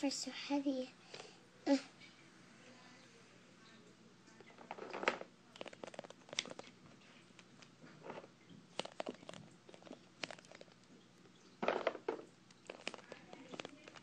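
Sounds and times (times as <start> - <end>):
plastic toys clicking and rustling: 4.5 - 10.9, 11.6 - 14.0.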